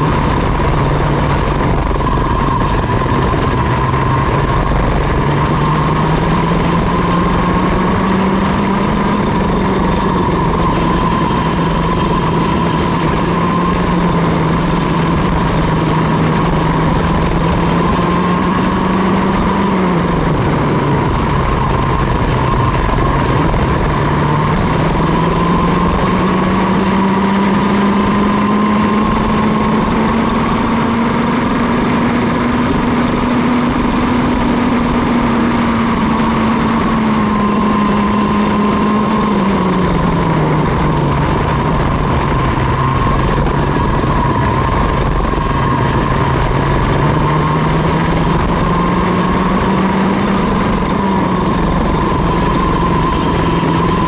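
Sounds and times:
kart engine revving: 0.0 - 54.0.

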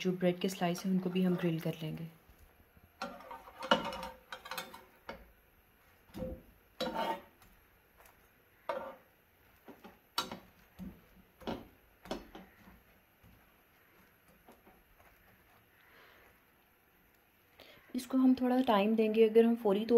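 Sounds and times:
metal spatula tapping grill pan: 3.0 - 5.3, 9.8 - 10.5, 11.4 - 12.5.

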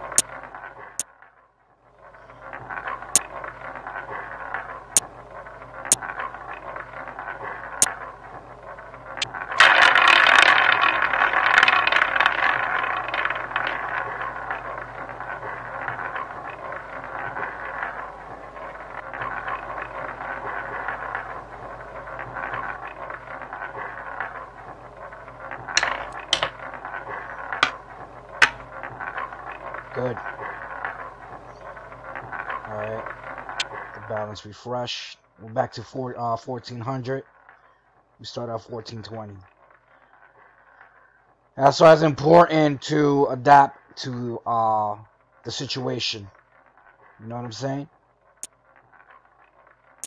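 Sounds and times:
roulette ball rattling whir: 0.0 - 34.4, 35.8 - 50.0
ball dropping into pocket: 9.2 - 31.1
chips clicking on table: 25.7 - 26.7.

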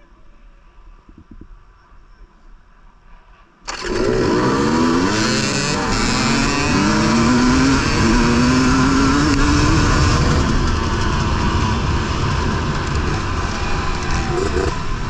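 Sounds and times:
dirt bike engine revving: 3.7 - 15.0.

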